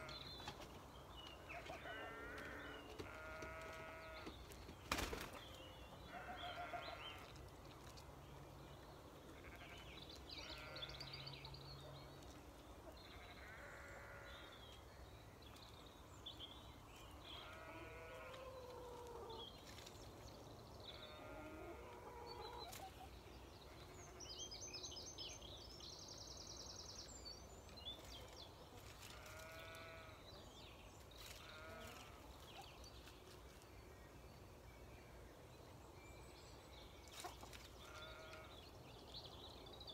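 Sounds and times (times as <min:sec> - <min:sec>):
farm animal calls: 0:01.5 - 0:04.2.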